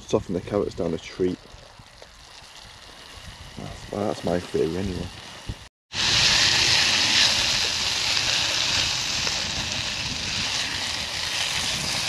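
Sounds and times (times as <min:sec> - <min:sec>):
vegetables sizzling in a pan: 0:02.9 - 0:12.0.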